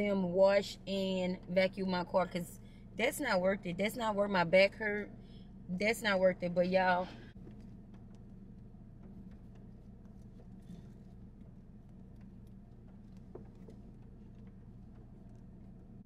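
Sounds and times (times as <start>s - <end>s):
clicks and rustles of movement: 7.3s - 16.0s.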